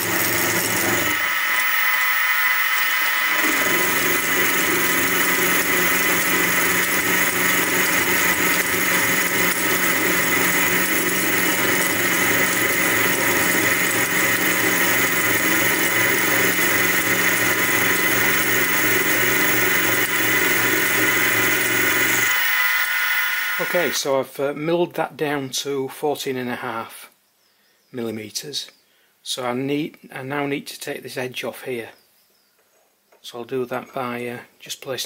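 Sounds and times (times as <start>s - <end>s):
milling machine whine: 0.0s - 24.0s.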